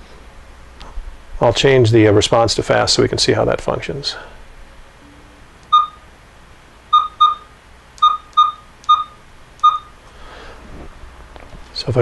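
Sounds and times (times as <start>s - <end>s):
short electronic beeps: 5.7s - 6.0s, 6.9s - 9.9s.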